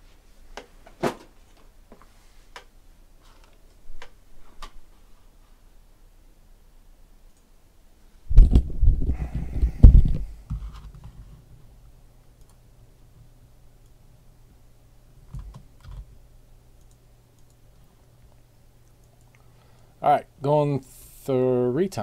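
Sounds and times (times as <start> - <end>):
typing on computer keyboard: 15.3 - 16.1.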